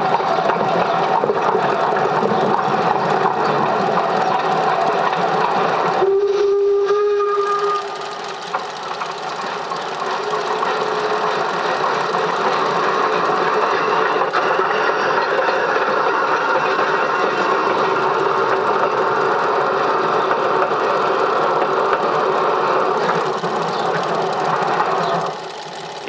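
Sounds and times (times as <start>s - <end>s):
steam locomotive running: 0.0s - 26.0s
steam locomotive whistle: 6.0s - 8.6s, 10.0s - 12.0s.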